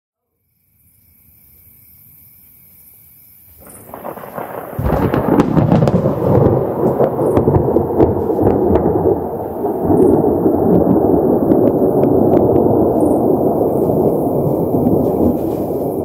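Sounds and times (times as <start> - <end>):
thunder rumbling and crashing: 3.6 - 16.0.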